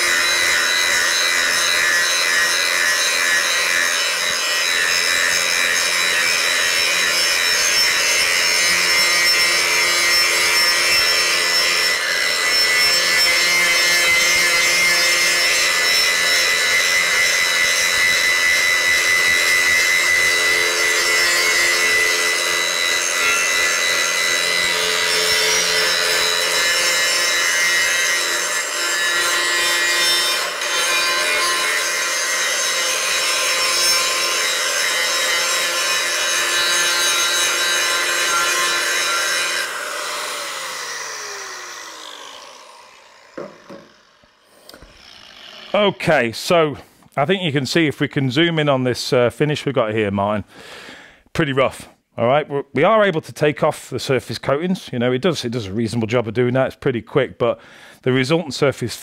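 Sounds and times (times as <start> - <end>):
grinder spinning down: 0.0 - 46.1
angle grinder grinding steel: 0.0 - 46.7.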